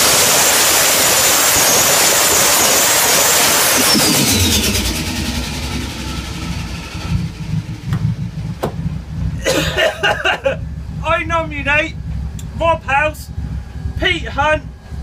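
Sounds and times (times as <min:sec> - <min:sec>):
tyres spinning with high revs: 0:00.0 - 0:15.0
car engine idling: 0:03.2 - 0:15.0.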